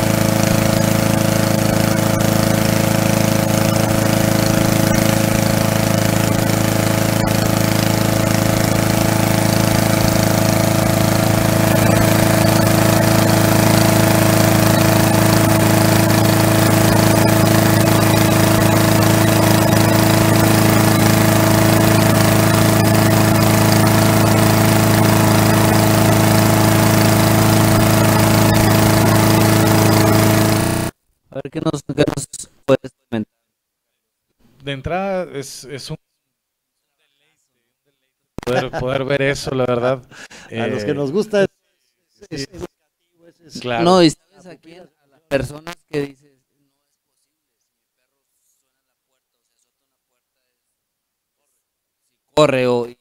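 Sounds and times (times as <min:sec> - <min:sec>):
lawn mower engine running: 0:00.0 - 0:30.9.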